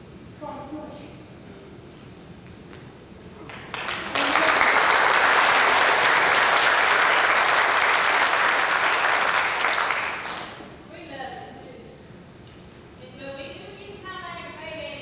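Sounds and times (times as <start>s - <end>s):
congregation applauding: 3.4s - 10.7s.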